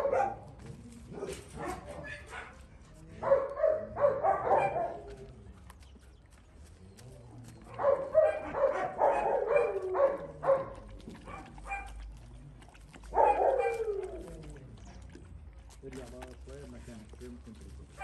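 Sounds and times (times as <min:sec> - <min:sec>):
dog barking: 0:00.0 - 0:00.5, 0:01.1 - 0:02.6, 0:03.2 - 0:05.1, 0:07.7 - 0:12.0, 0:13.1 - 0:14.0.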